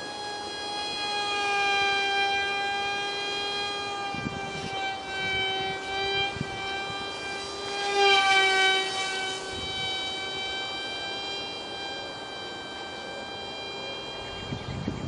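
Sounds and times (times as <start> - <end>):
small electric motor whining: 0.0 - 15.0.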